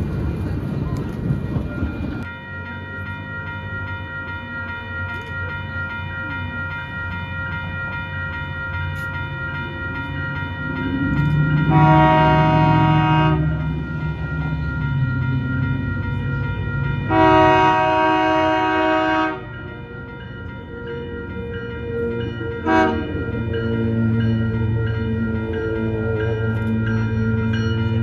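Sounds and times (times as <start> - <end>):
crossing warning bell ringing: 0.0 - 28.0
train rumbling: 0.0 - 28.0
train horn: 11.5 - 13.8, 17.1 - 19.6, 21.7 - 24.2.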